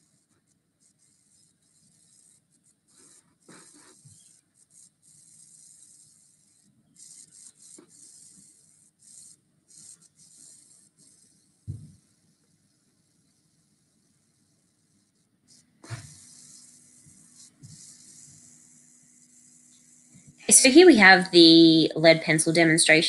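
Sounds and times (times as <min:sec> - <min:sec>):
pencil scratching on paper: 0:00.0 - 0:21.2.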